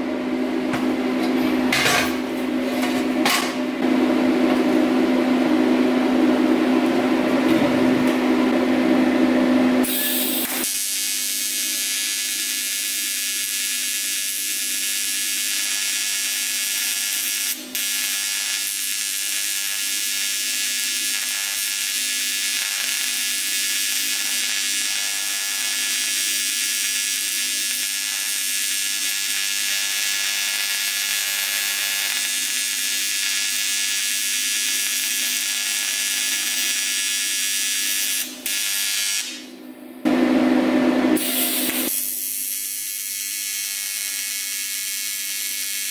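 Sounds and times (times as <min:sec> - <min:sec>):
welding arc buzzing: 0:09.8 - 0:45.9.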